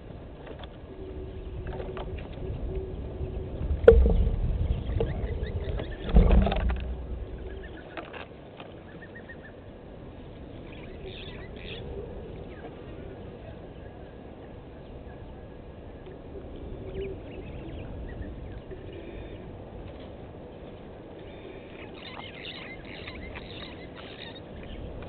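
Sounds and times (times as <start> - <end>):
low outdoor rumble: 0.0 - 8.6.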